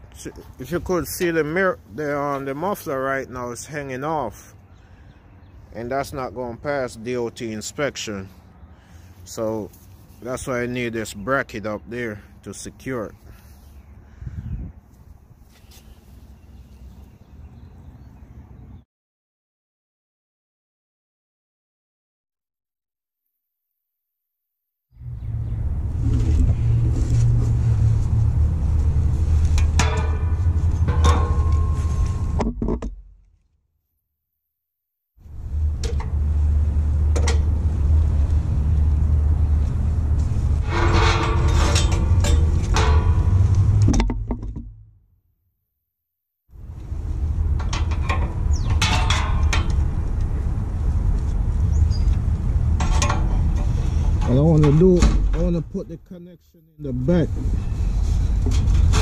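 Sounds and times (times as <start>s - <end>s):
vehicle engine running: 25.0s - 31.1s, 35.3s - 43.9s
steady low rumble: 25.0s - 32.6s, 35.2s - 44.9s, 46.6s - 56.0s
metal clinks and knocks: 29.6s - 33.0s, 40.6s - 44.8s.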